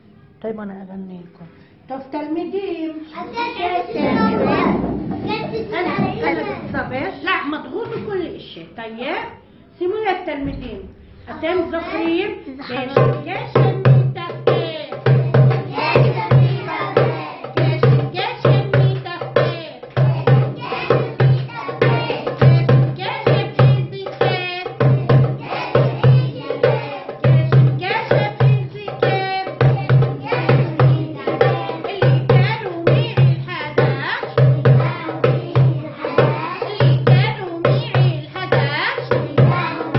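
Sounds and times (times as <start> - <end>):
goblet drum beating: 3.6 - 7.4, 12.8 - 39.9
woman singing: 12.6 - 15.1, 17.6 - 19.8, 22.2 - 25.0, 27.1 - 34.8, 36.5 - 39.9.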